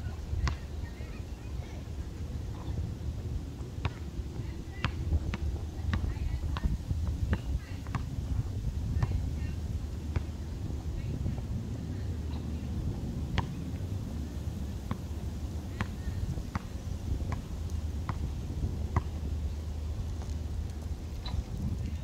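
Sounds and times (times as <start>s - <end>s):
low background rumble: 0.0s - 22.0s
basketball bouncing on concrete: 0.4s - 0.6s, 4.7s - 8.1s, 13.3s - 13.6s, 15.7s - 16.7s, 17.3s - 19.1s.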